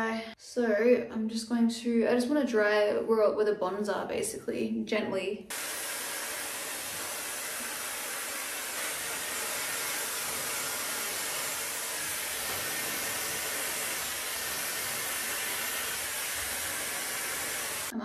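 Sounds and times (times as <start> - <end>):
hair dryer blowing: 5.5 - 18.0.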